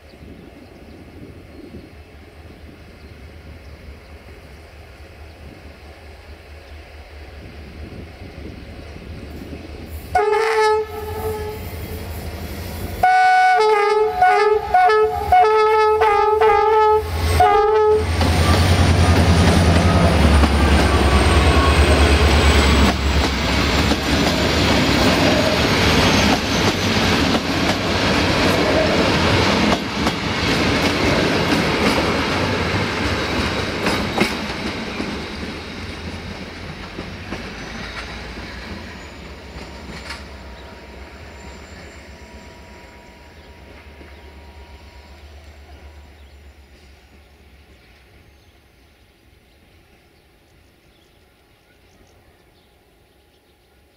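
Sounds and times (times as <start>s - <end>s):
diesel locomotive engine passing: 0.0s - 53.9s
locomotive horn toots: 10.1s - 12.0s, 13.0s - 22.9s
train wheels clicking over rail joints: 18.1s - 41.1s.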